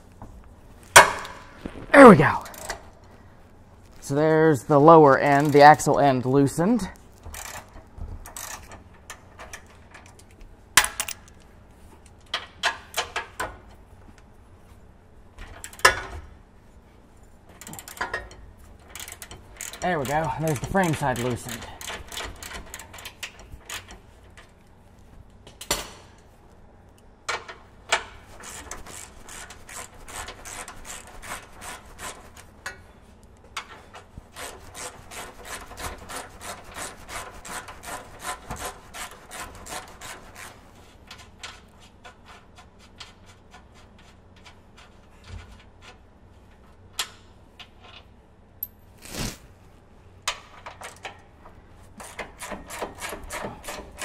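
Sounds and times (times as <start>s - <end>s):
hand ratchet clicking: 7.2s - 10.2s, 17.6s - 24.5s, 27.9s - 32.8s.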